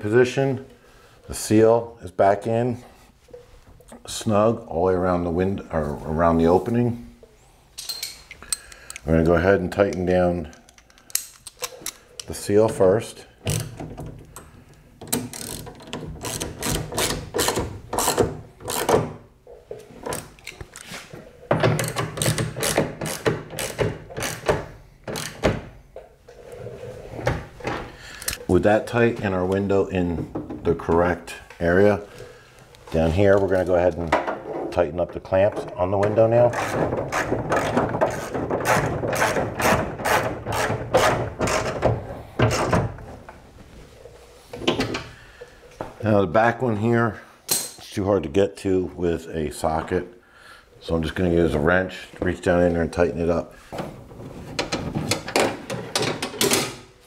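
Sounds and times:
socket ratchet clicking: 0:21.8 - 0:25.5.

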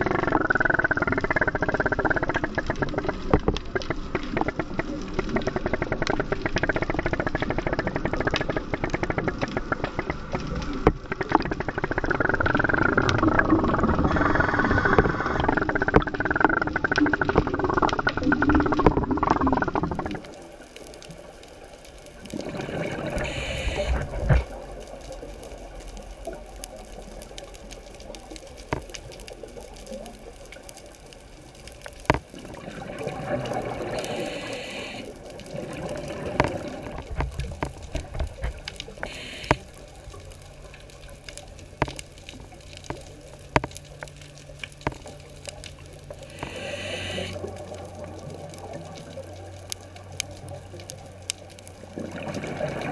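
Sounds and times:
regulator bubbles rushing underwater: 0:00.0 - 0:52.9
sharp clicks: 0:37.2 - 0:39.8.

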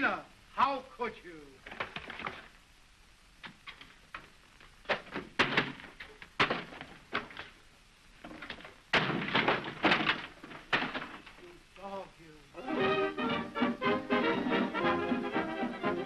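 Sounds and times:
wooden knocks and thuds: 0:03.4 - 0:07.6, 0:08.2 - 0:11.4
double bass smashing crash: 0:08.9 - 0:11.3.

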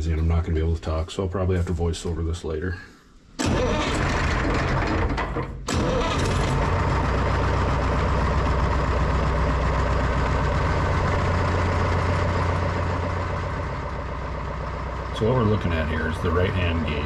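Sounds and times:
loader engine running: 0:03.4 - 0:17.0.

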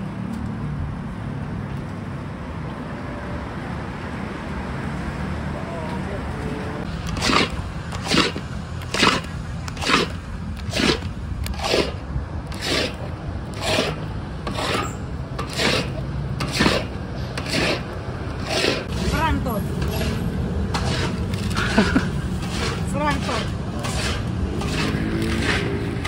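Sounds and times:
paddle scraping paste in a wok: 0:07.0 - 0:26.0.

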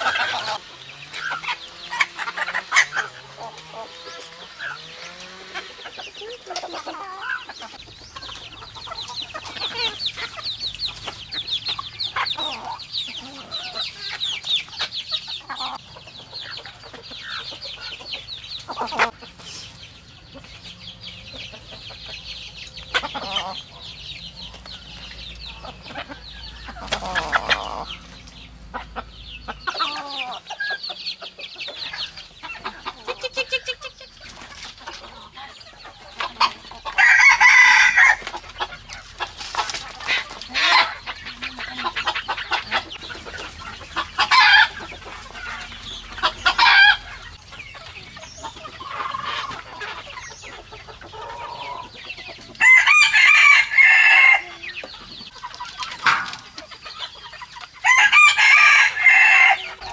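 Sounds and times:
chickens clucking: 0:00.0 - 0:59.9
rooster crowing: 0:36.9 - 0:38.3, 0:52.6 - 0:54.6, 0:57.8 - 0:59.8.

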